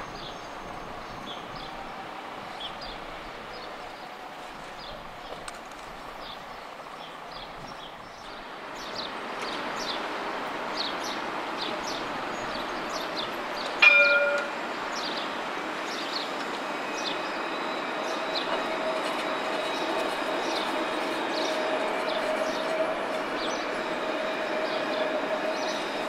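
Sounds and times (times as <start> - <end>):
tram running noise: 0.0 - 26.0
tram warning bell clang: 13.8 - 14.6.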